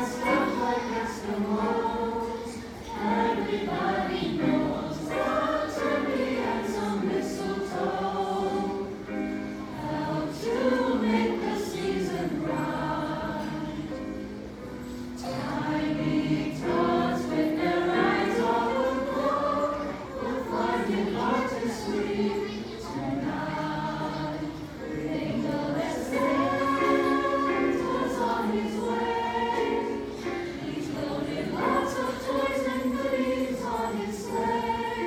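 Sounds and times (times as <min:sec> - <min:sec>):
choir singing in parts: 0:00.0 - 0:35.0.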